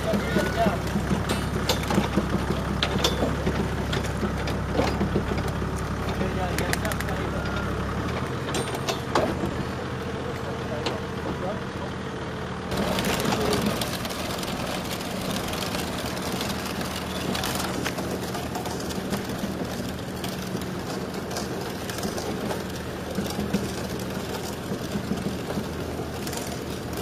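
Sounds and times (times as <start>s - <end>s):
knocks from drive and wheels: 0.0s - 7.2s, 12.7s - 27.0s
constant low hum: 0.0s - 27.0s
steam vehicle rumble and hiss: 0.0s - 27.0s.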